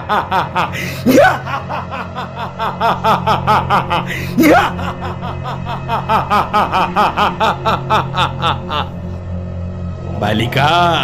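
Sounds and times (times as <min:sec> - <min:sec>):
man laughing maniacally: 0:00.0 - 0:09.2
low musical drone: 0:00.0 - 0:11.0.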